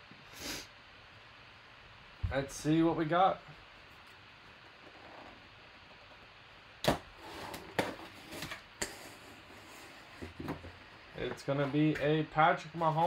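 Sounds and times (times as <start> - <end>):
tape and cardboard rustling: 6.8 - 13.0.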